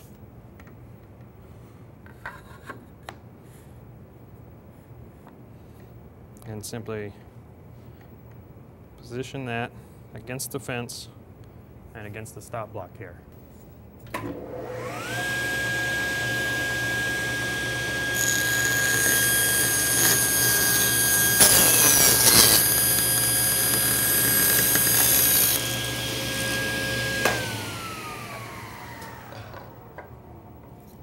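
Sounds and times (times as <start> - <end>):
table saw whining: 14.3 - 30.4
saw blade cutting wood: 14.8 - 29.7.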